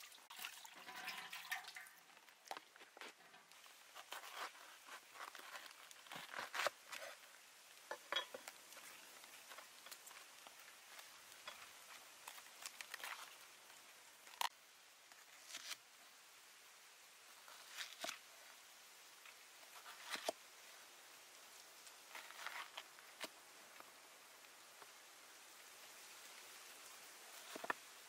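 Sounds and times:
knife cutting crisp plant layers: 0:02.5 - 0:07.3, 0:15.3 - 0:15.8.

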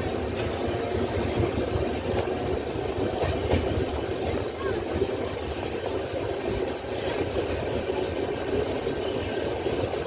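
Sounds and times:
train rumbling: 0:00.0 - 0:10.0.

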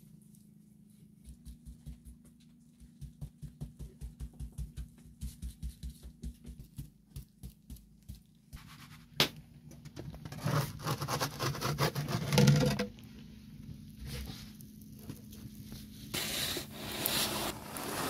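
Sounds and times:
wooden peel scraping oven hearth: 0:10.1 - 0:13.0, 0:15.9 - 0:18.0.

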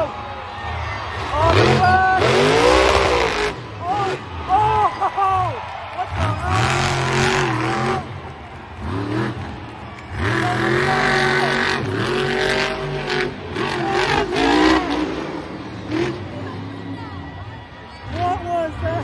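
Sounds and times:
truck engine revving hard: 0:01.2 - 0:04.6, 0:06.0 - 0:17.0.

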